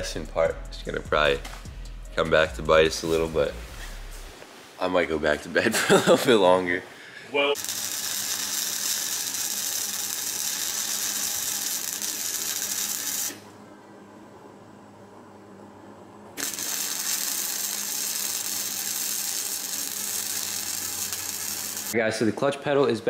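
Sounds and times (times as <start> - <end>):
arc welding crackling sizzle: 7.5 - 13.5, 16.4 - 22.0.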